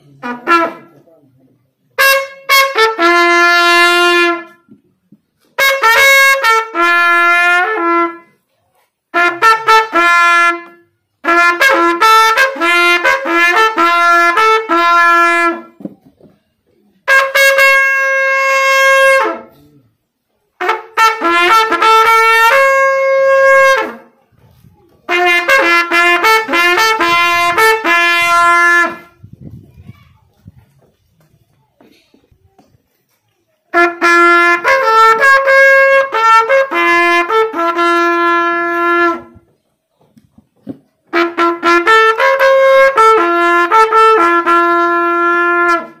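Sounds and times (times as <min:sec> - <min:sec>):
natural trumpet blowing: 0:00.0 - 0:00.9, 0:02.0 - 0:04.7, 0:05.4 - 0:15.8, 0:17.0 - 0:20.0, 0:20.6 - 0:29.4, 0:33.7 - 0:39.5, 0:41.1 - 0:46.0.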